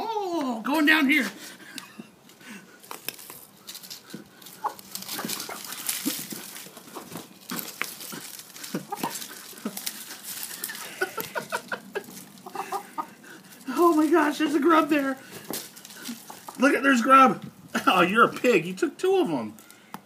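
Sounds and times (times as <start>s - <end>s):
hand cultivator scraping soil: 2.8s - 16.7s
hens clucking: 3.6s - 17.7s.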